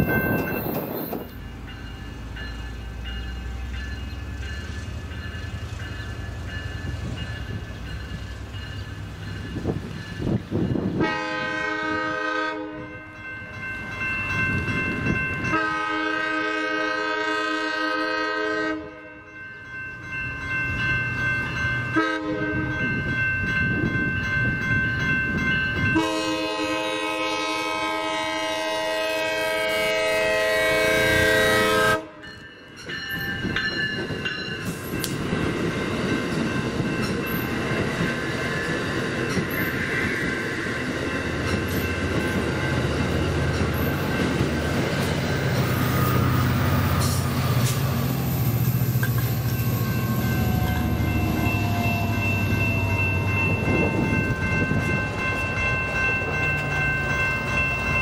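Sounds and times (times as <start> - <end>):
rumble of approaching train: 0.0 - 58.0
train horn blasts: 11.0 - 13.0, 15.4 - 19.2, 21.9 - 22.8, 25.9 - 32.3.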